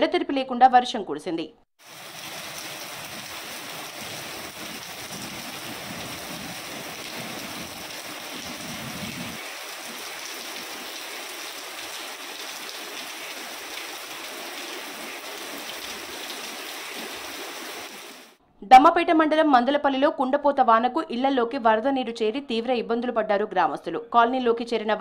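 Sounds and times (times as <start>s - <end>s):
heavy rain falling: 1.8s - 18.4s.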